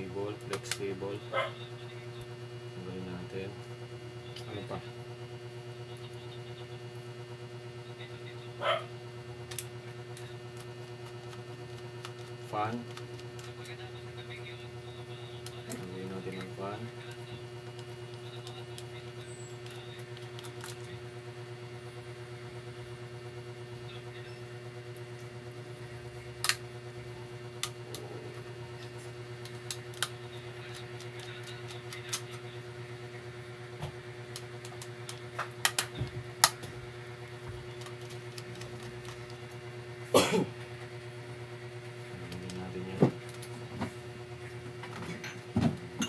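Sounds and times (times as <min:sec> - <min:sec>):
steady low hum: 0:00.0 - 0:46.0
laptop parts clicking: 0:29.4 - 0:32.4.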